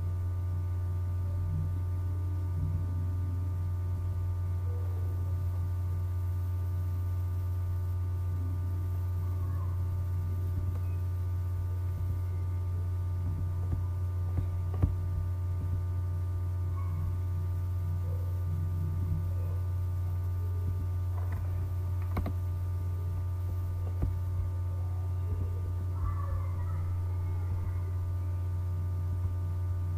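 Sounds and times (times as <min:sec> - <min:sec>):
low electrical hum: 0:00.0 - 0:29.9
computer mouse clicks: 0:21.2 - 0:22.4.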